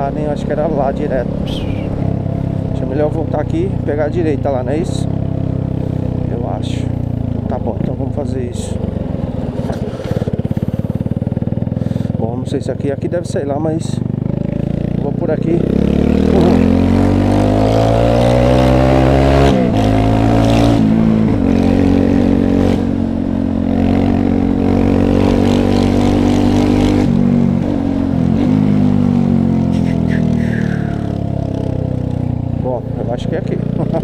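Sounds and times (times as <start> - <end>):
motorcycle engine accelerating: 0.0 - 34.0.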